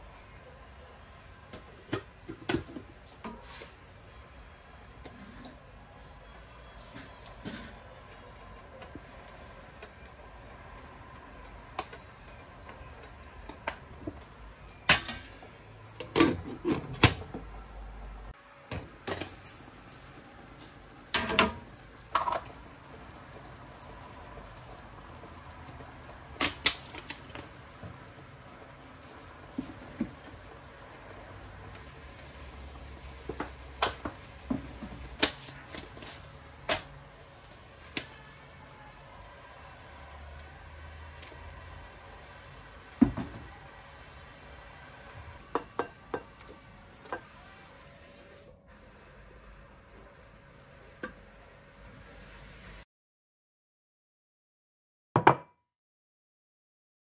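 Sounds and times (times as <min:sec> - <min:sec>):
utensils clinking against metal pot: 0:45.4 - 0:47.3.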